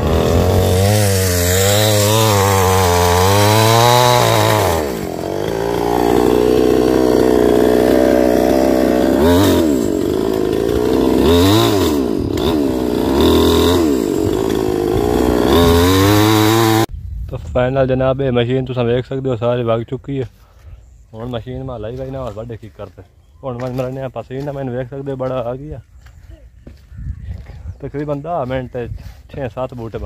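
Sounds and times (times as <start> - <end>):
chainsaw revving and idling: 0.0 - 16.9.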